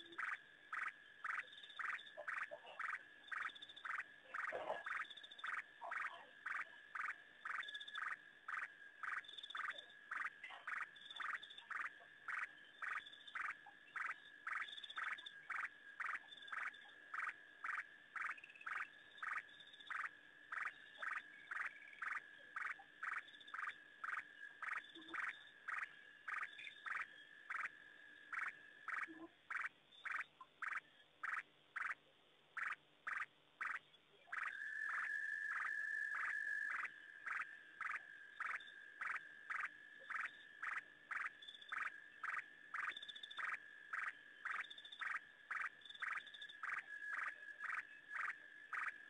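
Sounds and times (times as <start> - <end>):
frogs calling: 0.0 - 49.0.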